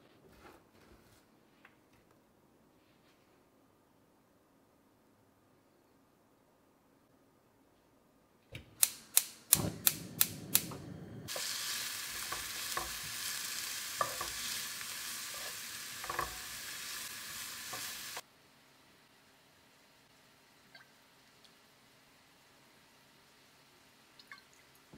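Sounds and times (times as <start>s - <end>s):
sharp clicks: 8.6s - 11.0s
onion sizzling in a frying pan: 9.5s - 18.2s
spatula knocking and scraping pan: 11.3s - 16.8s.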